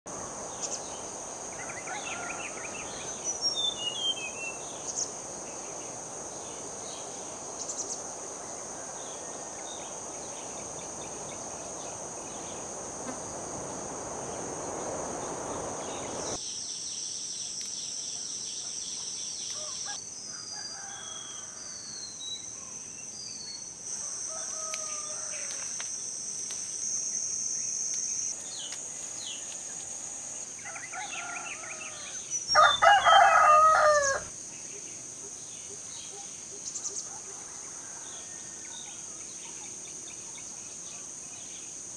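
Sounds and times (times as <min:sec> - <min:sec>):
insects trilling: 0:00.1 - 0:41.9
rooster crowing: 0:01.5 - 0:03.0, 0:19.6 - 0:21.8, 0:24.0 - 0:25.7, 0:30.6 - 0:34.3
low rushing noise: 0:05.3 - 0:16.4
small birds chirping: 0:14.3 - 0:16.8.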